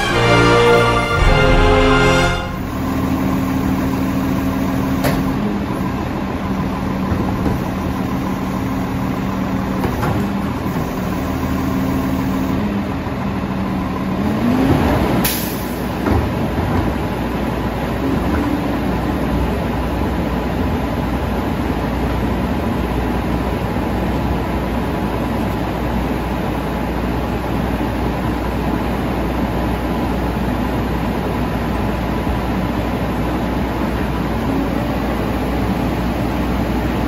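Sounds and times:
sharp bang: 0.0s - 4.1s
cart tipper dumping trash cart: 0.0s - 12.6s
garbage truck idling: 0.0s - 14.3s, 15.2s - 37.0s.

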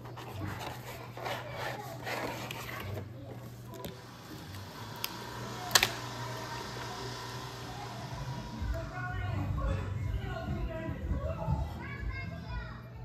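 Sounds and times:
plastic crackling and clicking: 3.7s - 6.0s
sharp plastic snap: 5.0s - 6.0s.

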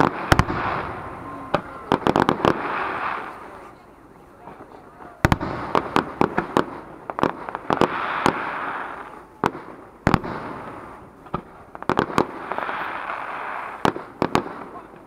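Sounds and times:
firework shells bursting: 0.0s - 3.6s, 5.2s - 14.8s
fireworks hiss: 0.0s - 3.9s, 4.6s - 14.8s.

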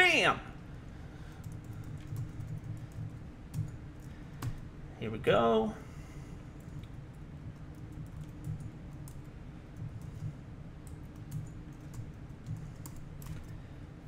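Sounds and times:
steady low hum: 0.0s - 14.0s
keyboard typing: 1.4s - 4.6s, 7.5s - 13.6s.

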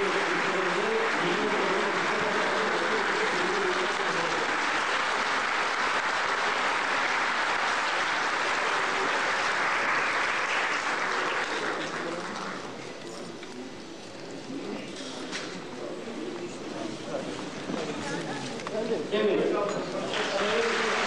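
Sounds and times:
audience applauding: 0.0s - 12.8s, 20.0s - 21.0s.

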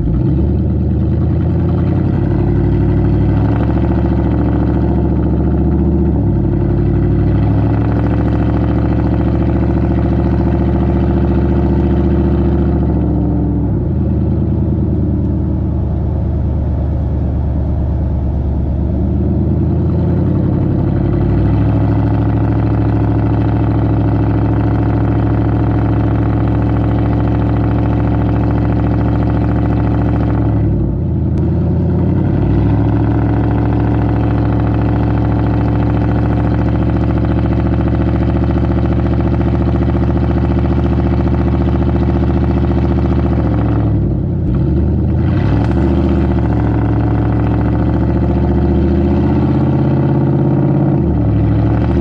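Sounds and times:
loud truck exhaust while driving: 0.0s - 52.0s.

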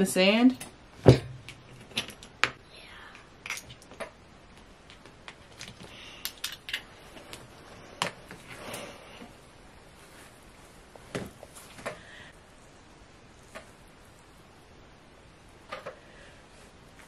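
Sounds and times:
shells clicking: 6.2s - 6.8s.

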